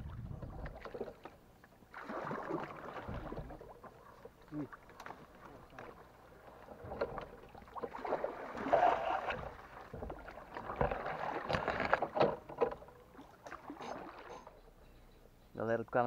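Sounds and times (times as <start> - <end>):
water splashing around a boat: 0.0 - 14.8
knocks on a boat: 9.2 - 12.9.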